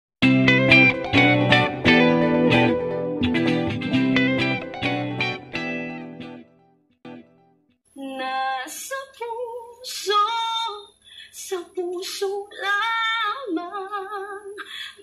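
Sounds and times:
woman singing a ballad: 0:08.0 - 0:15.0.

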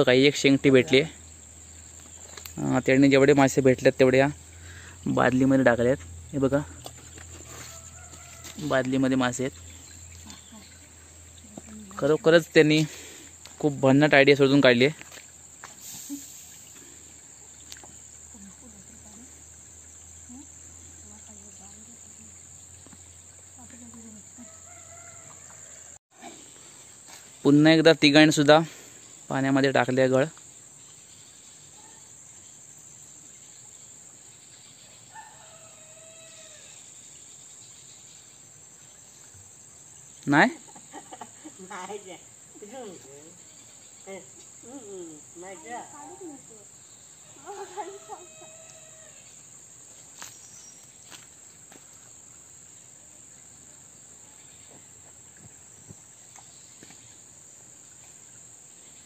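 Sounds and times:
crickets trilling: 0:00.0 - 0:59.0
high-pitched insect chorus: 0:00.0 - 0:59.0
faint rooster crow: 0:07.4 - 0:08.8, 0:24.4 - 0:26.0, 0:35.1 - 0:36.9, 0:47.4 - 0:49.4.

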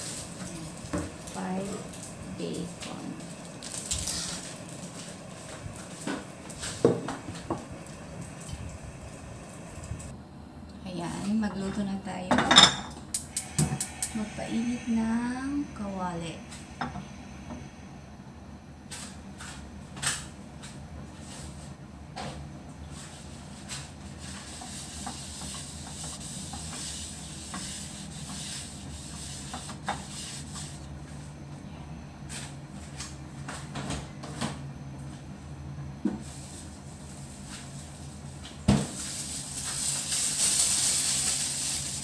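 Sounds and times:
gas burner hissing: 0:00.0 - 0:10.2, 0:13.1 - 0:20.1, 0:22.8 - 0:31.1, 0:36.2 - 0:42.0
low hum: 0:13.1 - 0:19.8
rustling hiss: 0:39.0 - 0:42.0.

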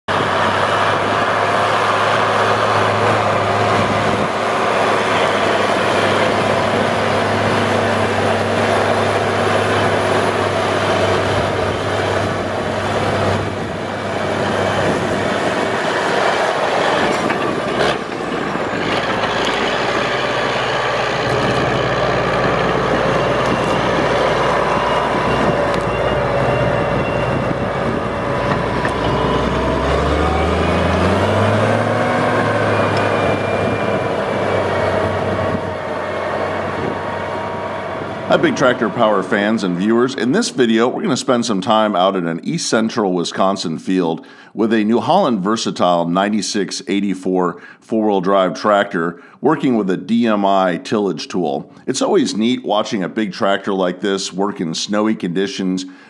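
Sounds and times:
tractor diesel engine under load: 0:00.1 - 0:56.0.

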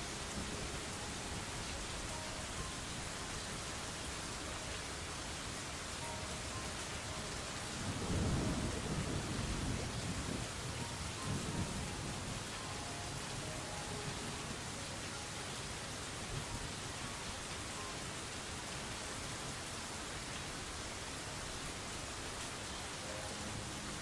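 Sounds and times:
steady rain hiss: 0:00.0 - 0:24.0
low rumble of thunder: 0:07.4 - 0:13.6.

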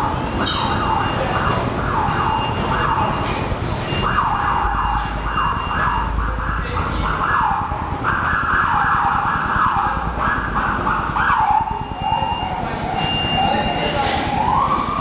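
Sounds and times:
train wheels squealing on track: 0:00.2 - 0:01.3, 0:12.1 - 0:15.0.

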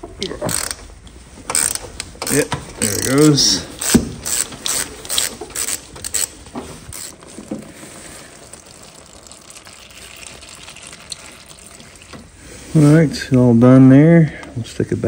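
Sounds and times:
ratchet wrench clicking: 0:00.5 - 0:00.8, 0:01.5 - 0:06.3, 0:06.9 - 0:07.1
oil trickling into a pan: 0:07.2 - 0:12.7.

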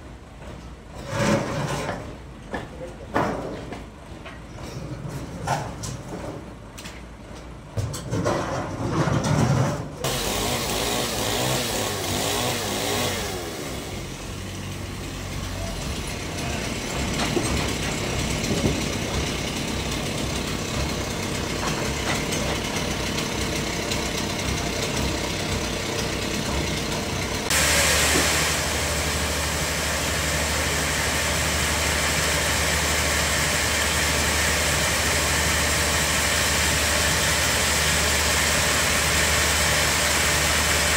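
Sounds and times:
bandsaw running with hiss: 0:10.0 - 0:40.9
sawmill machinery humming: 0:10.0 - 0:40.9.

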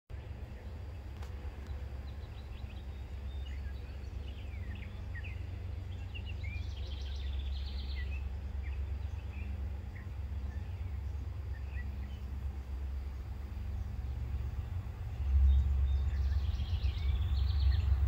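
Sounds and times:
songbirds chirping and singing: 0:00.1 - 0:18.0
steady low rumble: 0:00.1 - 0:18.0
bird trill: 0:15.2 - 0:18.0.

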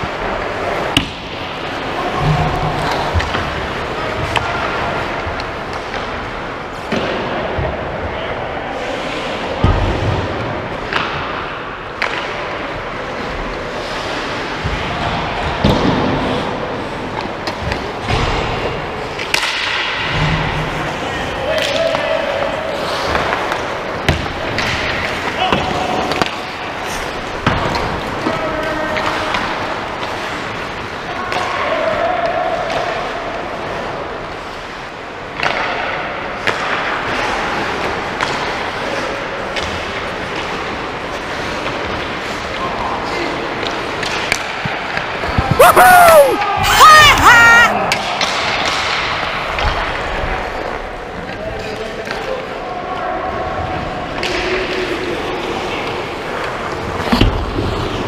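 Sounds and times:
skates scraping ice: 0:08.7 - 0:31.9, 0:32.7 - 0:58.0
hockey stick clacking puck: 0:12.0 - 0:12.5, 0:17.2 - 0:20.2, 0:21.6 - 0:30.7, 0:35.3 - 0:42.6, 0:43.5 - 0:45.5, 0:47.9 - 0:52.6, 0:54.1 - 0:58.0.

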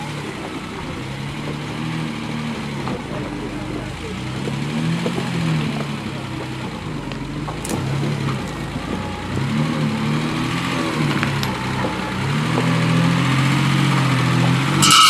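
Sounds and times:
truck engine crawling over rocks: 0:00.0 - 0:15.0
high-pitched squeal: 0:07.8 - 0:15.0.

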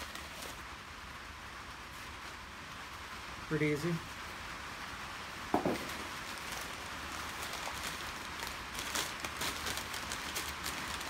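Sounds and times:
rain pattering on a roof: 0:00.0 - 0:11.0
sharp knock: 0:05.5 - 0:05.9.

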